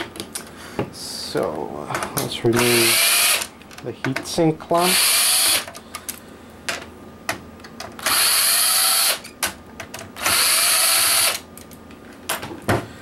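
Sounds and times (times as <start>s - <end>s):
cordless drill motor winding: 2.6s - 3.5s, 4.9s - 5.7s, 8.0s - 9.3s, 10.2s - 11.4s.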